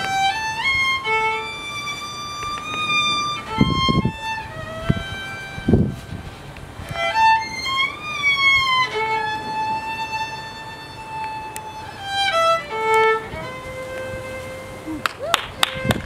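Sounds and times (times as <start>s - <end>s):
slow violin melody: 0.0s - 16.0s.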